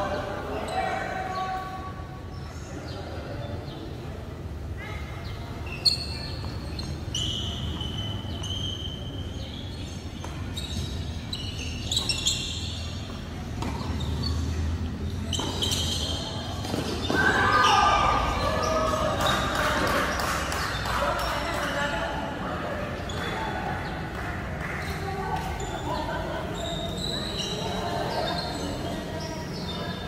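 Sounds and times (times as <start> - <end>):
voices calling out: 0.0 - 30.0
sneakers squeaking on court: 5.0 - 21.9, 22.8 - 24.1, 24.8 - 30.0
ball bouncing on hard court: 10.2 - 11.0, 11.8 - 14.4, 15.3 - 17.7.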